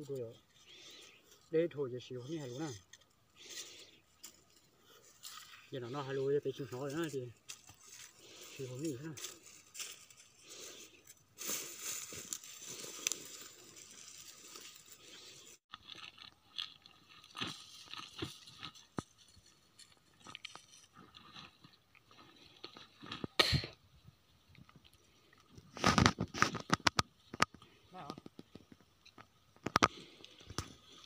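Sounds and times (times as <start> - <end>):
dry stalks and leaves crunching: 2.3 - 23.3.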